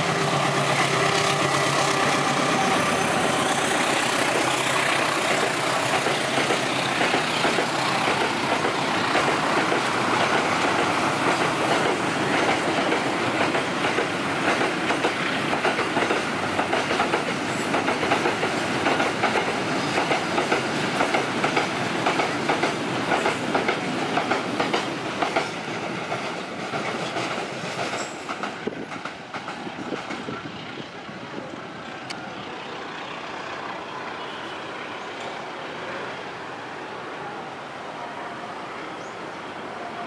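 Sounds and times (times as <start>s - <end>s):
train wheels clacking over rail joints: 0.0s - 30.9s
train rumble: 0.0s - 38.8s.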